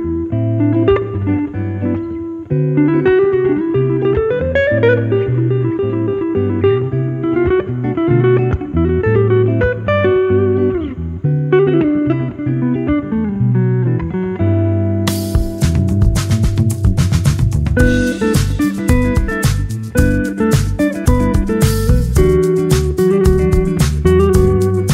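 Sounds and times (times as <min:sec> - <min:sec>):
guitar melody with bending notes: 0:00.0 - 0:24.9
steady bass line: 0:15.1 - 0:24.9.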